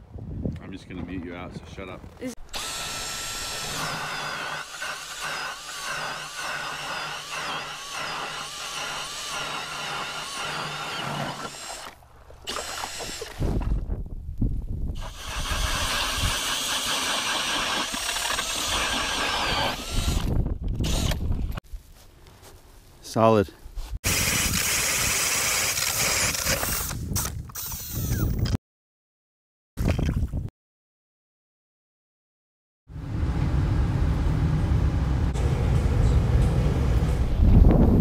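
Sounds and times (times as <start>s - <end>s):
cordless drill spinning ice auger: 2.3s - 13.7s, 15.0s - 21.2s, 24.1s - 28.5s.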